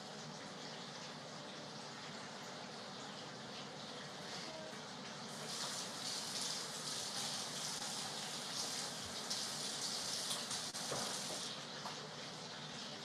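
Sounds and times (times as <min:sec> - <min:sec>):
tap water running into sink: 0:05.0 - 0:13.0.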